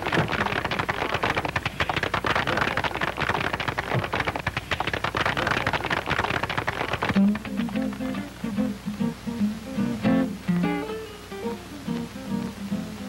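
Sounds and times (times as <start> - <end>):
crowd applauding: 0.0 - 8.1
acoustic guitar strumming: 7.2 - 13.0.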